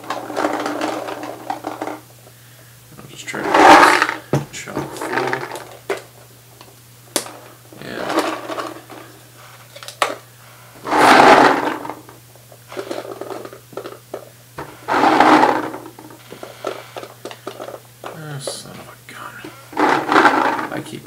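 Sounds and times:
paintballs rattling into hopper: 0.0s - 2.1s, 3.2s - 6.1s, 7.2s - 10.2s, 10.8s - 18.7s, 19.7s - 21.0s.

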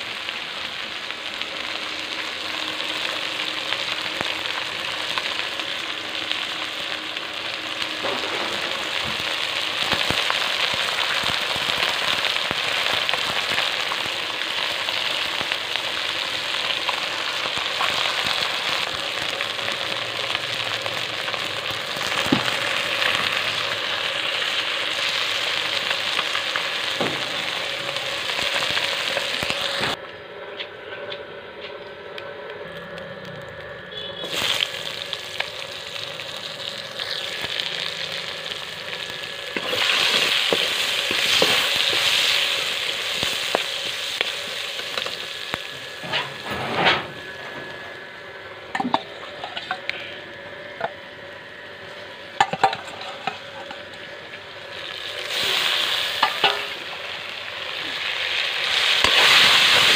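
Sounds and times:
fish frying in hot oil: 0.0s - 30.0s, 33.9s - 46.4s, 52.3s - 59.9s
onion sizzling in oil: 0.0s - 30.0s, 33.9s - 59.9s.

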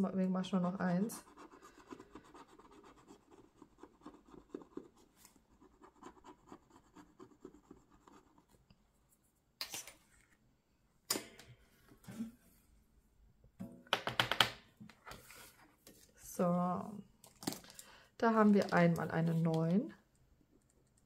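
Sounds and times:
pen scratching on paper: 1.2s - 8.6s.

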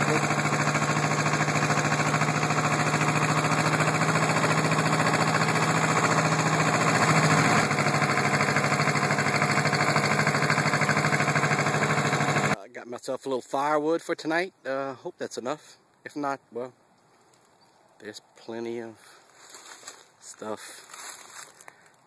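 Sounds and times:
tractor engine chugging: 0.0s - 12.6s.

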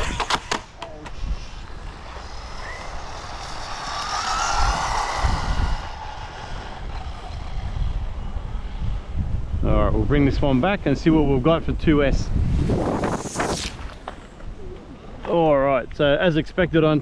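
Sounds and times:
wind buffeting microphone: 1.0s - 15.2s
toy truck motor whine: 1.2s - 9.1s.

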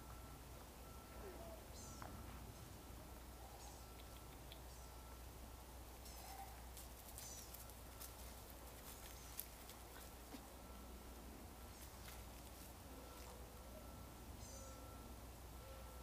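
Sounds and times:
faint outdoor ambience: 0.0s - 16.0s
soft ticks: 3.9s - 4.7s.

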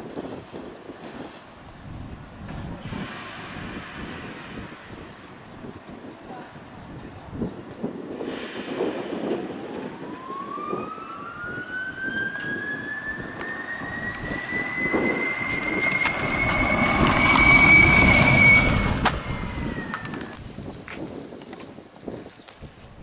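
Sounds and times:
electric motor whine: 10.1s - 20.4s
tyre noise: 12.4s - 23.0s.

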